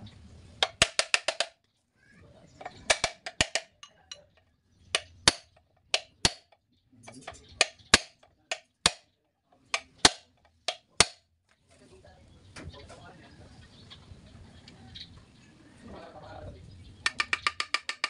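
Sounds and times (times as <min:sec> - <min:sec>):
hammer striking metal punch: 0:05.0 - 0:06.6, 0:07.3 - 0:09.1, 0:09.8 - 0:11.2.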